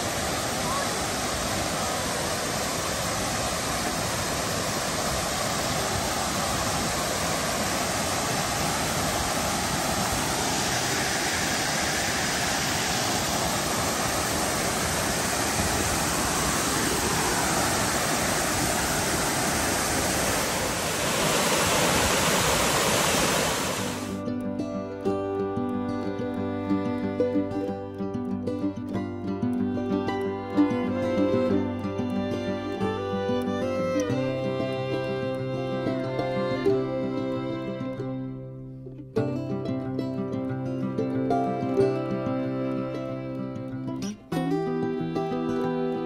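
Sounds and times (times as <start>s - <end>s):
waterfall rushing: 0.0s - 24.2s, 29.6s - 38.1s.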